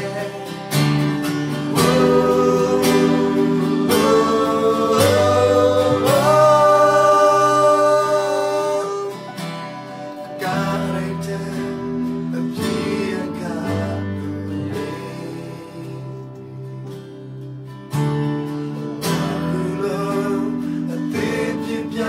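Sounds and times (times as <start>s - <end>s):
men singing together: 0.0s - 9.3s, 10.4s - 16.2s, 19.1s - 22.0s
electronic keyboard: 0.0s - 22.0s
strummed acoustic guitar: 0.0s - 22.0s.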